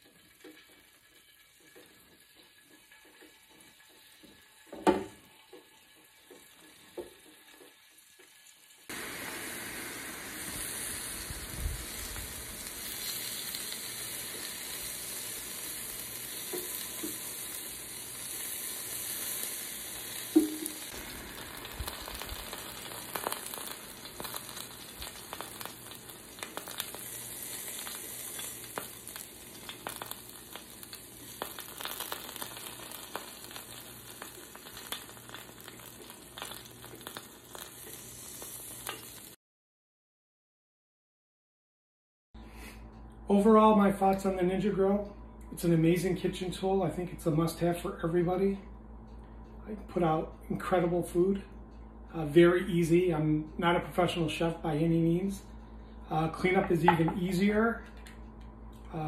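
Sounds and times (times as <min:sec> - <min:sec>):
scallops sizzling on grill: 0:00.0 - 0:39.4.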